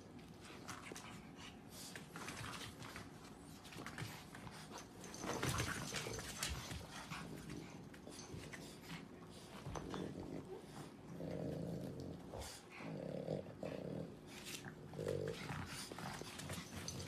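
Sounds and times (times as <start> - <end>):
dogs moving and tugging toy: 0.2 - 11.5, 14.3 - 17.0.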